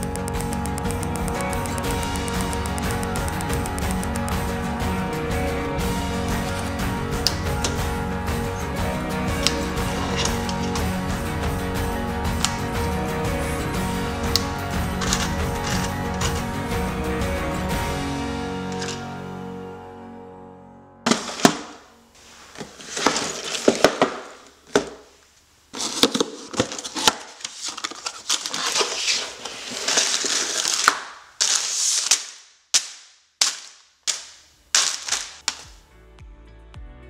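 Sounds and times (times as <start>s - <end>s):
sharp plastic clicks: 0.0s - 4.5s, 32.1s - 35.8s
background music: 0.0s - 22.2s, 35.4s - 37.0s
plastic bags crinkling: 21.1s - 32.4s, 33.4s - 35.8s
cardboard box tearing: 22.7s - 24.3s, 25.7s - 32.2s.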